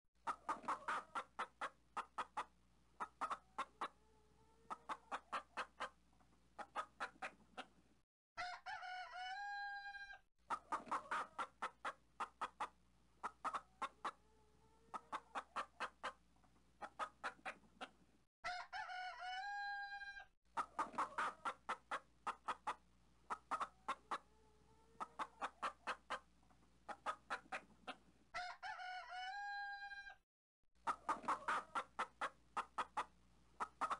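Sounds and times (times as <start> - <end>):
chickens clucking: 0.2 - 7.9, 10.4 - 29.8, 30.8 - 33.9
rooster crowing: 8.4 - 10.2, 18.4 - 20.3, 28.4 - 30.2.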